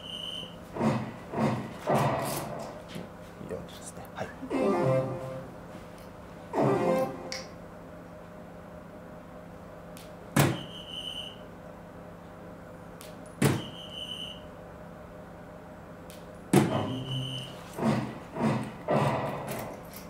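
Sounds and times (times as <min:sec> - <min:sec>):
darts thudding into dartboard: 0:10.4 - 0:10.7, 0:13.4 - 0:13.7, 0:16.5 - 0:16.9.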